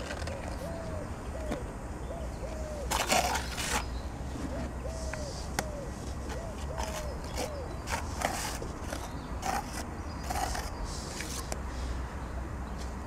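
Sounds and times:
dove cooing: 0:00.0 - 0:03.3, 0:04.4 - 0:07.8.

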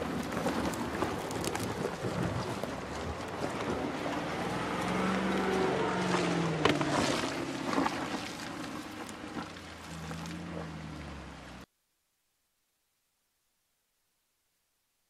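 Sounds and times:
engine running at low revs: 0:00.0 - 0:11.7.

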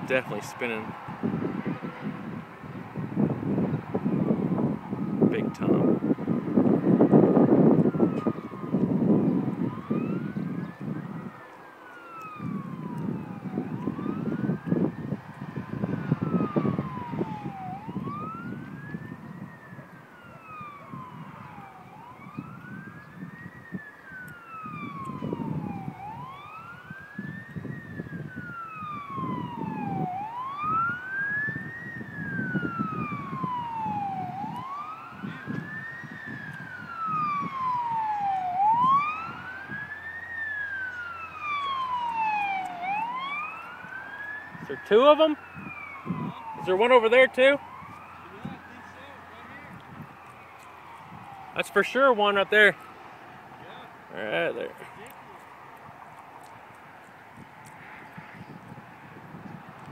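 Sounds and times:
siren wailing: 0:00.0 - 0:59.9
gusty low rumble: 0:00.8 - 0:11.4, 0:12.3 - 0:23.9.

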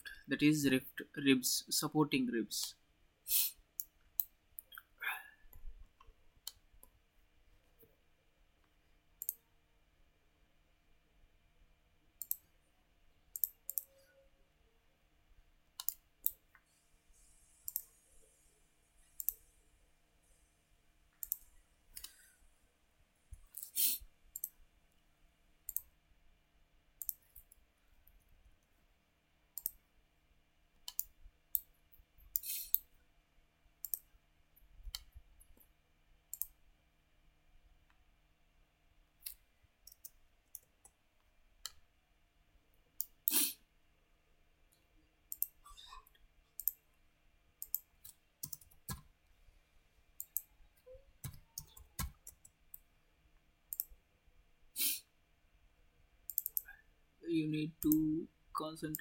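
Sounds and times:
computer mouse clicking: 0:05.5 - 0:07.0, 0:09.2 - 0:09.4, 0:12.2 - 0:12.5, 0:13.3 - 0:14.0, 0:15.8 - 0:16.6, 0:17.4 - 0:18.1, 0:19.1 - 0:19.6, 0:21.1 - 0:22.2, 0:24.3 - 0:24.6, 0:25.7 - 0:25.9, 0:27.0 - 0:27.6, 0:29.6 - 0:29.8, 0:30.8 - 0:31.7, 0:33.8 - 0:34.1, 0:36.3 - 0:36.6, 0:39.2 - 0:41.0, 0:43.0 - 0:43.4, 0:45.3 - 0:45.6, 0:46.6 - 0:46.8, 0:47.6 - 0:49.1, 0:50.2 - 0:50.5, 0:51.2 - 0:52.8, 0:53.7 - 0:53.9, 0:56.3 - 0:56.7.

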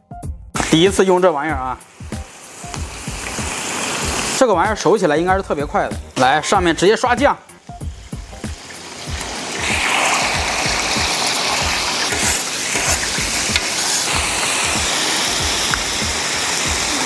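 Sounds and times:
squid sizzling on a griddle: 0:00.6 - 0:04.4, 0:07.5 - 0:17.0
spatula turning food: 0:07.8 - 0:17.0.

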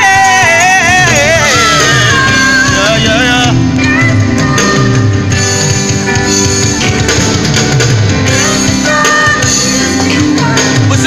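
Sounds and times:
drum kit: 0:00.0 - 0:11.0
electric guitar: 0:00.0 - 0:11.0
synthesizer keyboards: 0:00.0 - 0:11.0
woman singing: 0:03.8 - 0:05.4, 0:08.3 - 0:11.0.

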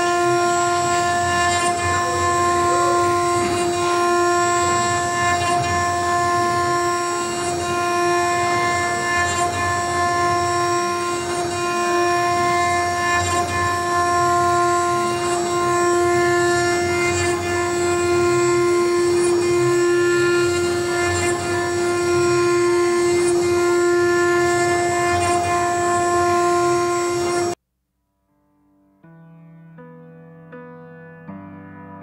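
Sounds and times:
router spindle high-pitched whine: 0:00.0 - 0:27.6.

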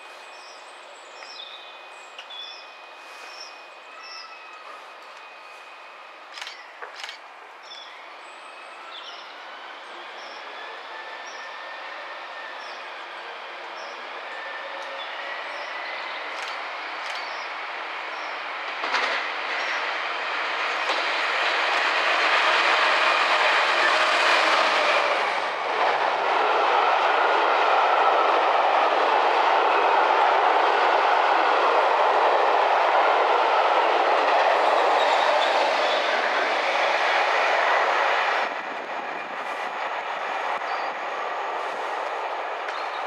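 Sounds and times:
diesel locomotive engine passing: 0:02.8 - 0:43.0
train wheels rumbling over rails: 0:04.6 - 0:07.2, 0:14.0 - 0:43.0.

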